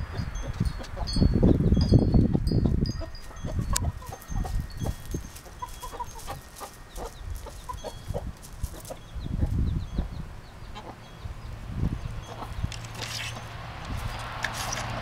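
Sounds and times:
chickens clucking: 0.0 - 1.3, 2.2 - 11.3, 12.0 - 13.5.

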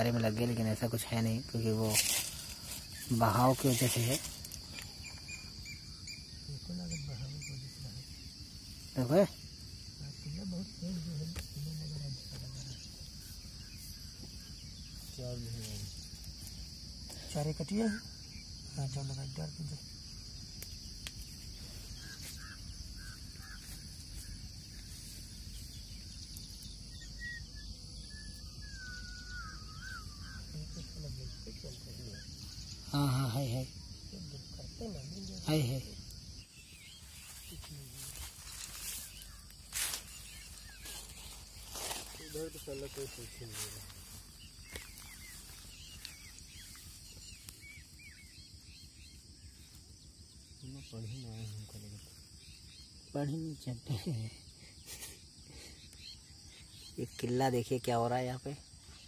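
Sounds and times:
high-pitched insect drone: 0.0 - 59.0
small bird chirping: 0.0 - 59.0
warbling bird whistle: 27.1 - 30.4.

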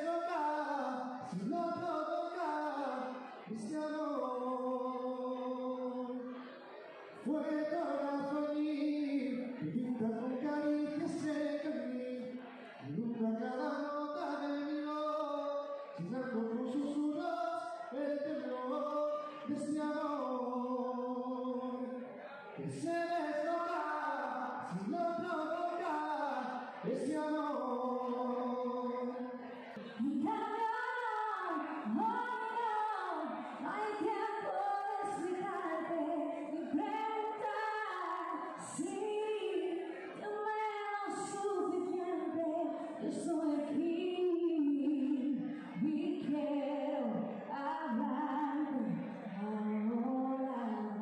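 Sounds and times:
man singing: 0.0 - 6.4, 7.2 - 51.0
woman singing: 30.0 - 51.0.

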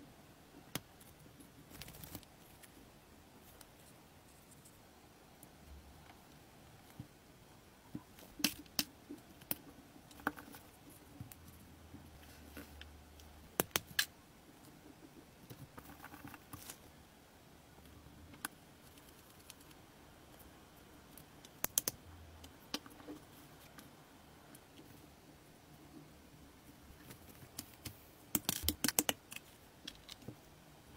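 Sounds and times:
tiny parts clicking and tapping: 21.1 - 23.8, 27.0 - 30.5.

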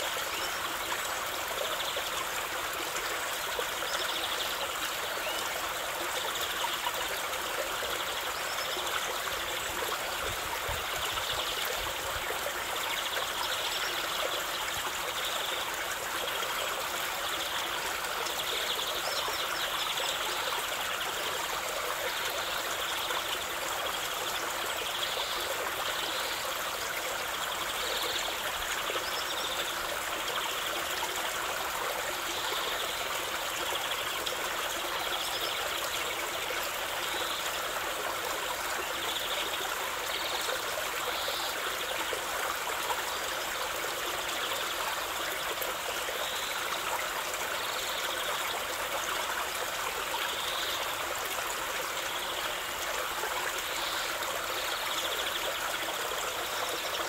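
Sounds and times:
small waterfall rushing: 0.0 - 57.0.

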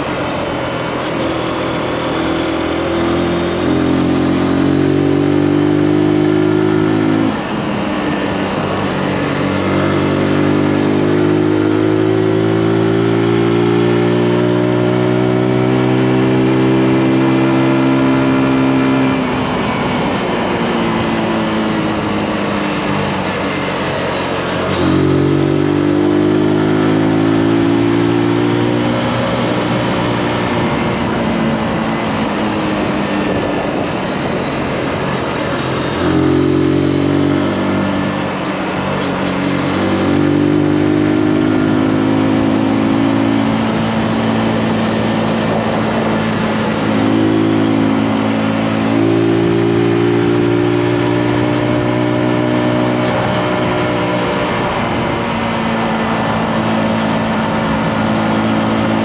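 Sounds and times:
motorcycle engine revving: 0.0 - 59.0
wind rushing: 28.9 - 40.4, 42.5 - 59.0.

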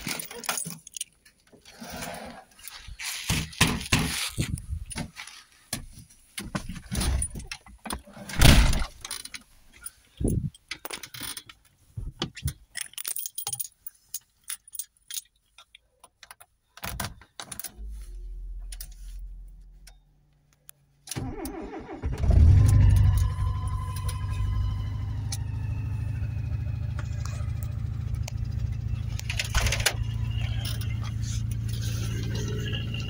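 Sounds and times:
handling clicks and knocks: 8.8 - 17.8
keys jangling: 12.7 - 15.7
car engine cranking and starting: 21.1 - 33.0
low hum: 22.2 - 33.0.

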